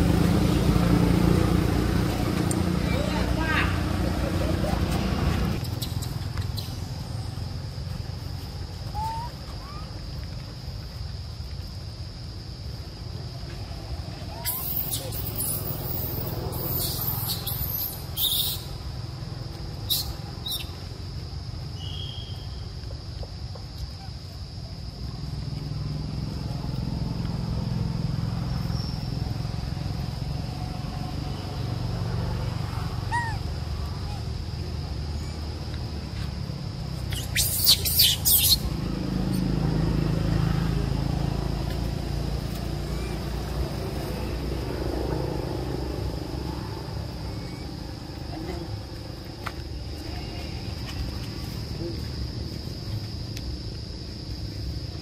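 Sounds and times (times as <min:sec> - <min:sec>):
engine running at low revs: 0:00.0 - 0:05.7, 0:38.7 - 0:50.0
high-pitched insect drone: 0:23.8 - 0:55.0.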